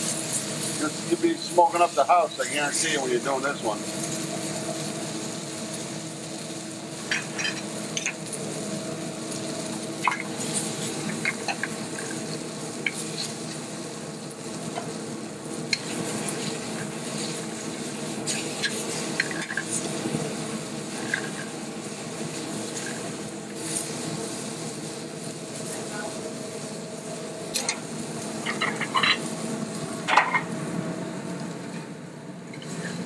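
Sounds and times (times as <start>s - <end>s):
steak sizzling in a skillet: 0.0s - 31.7s
vent hood fan hum: 0.0s - 33.0s
metal tongs scraping a pan: 7.0s - 8.2s, 18.2s - 19.9s, 20.9s - 21.5s, 28.4s - 29.3s.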